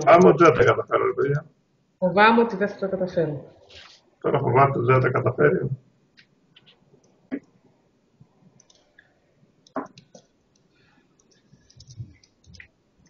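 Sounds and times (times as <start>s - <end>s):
quiet clicks and taps: 8.6s - 12.7s.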